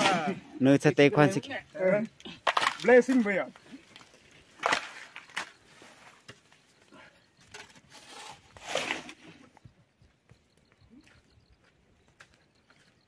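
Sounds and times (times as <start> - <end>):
shovel scraping gravel: 7.5 - 9.5.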